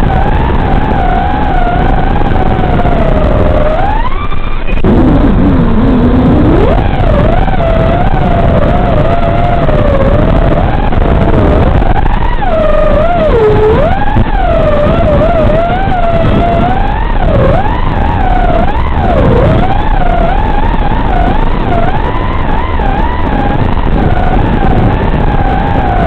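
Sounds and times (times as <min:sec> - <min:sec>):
drone motors whining: 0:00.0 - 0:26.0
rough rushing noise: 0:00.0 - 0:26.0.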